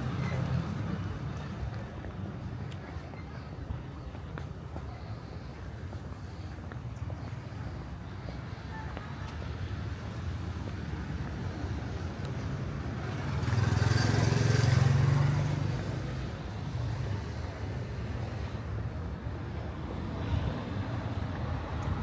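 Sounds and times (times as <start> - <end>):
vehicle passing by: 10.8 - 18.5.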